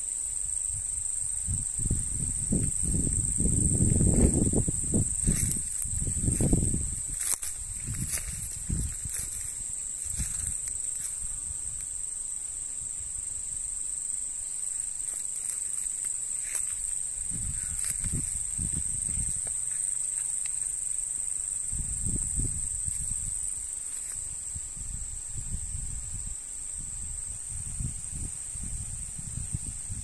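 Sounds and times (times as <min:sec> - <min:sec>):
insect chorus buzzing: 0:00.0 - 0:30.0
low microphone rumbles: 0:01.5 - 0:09.5.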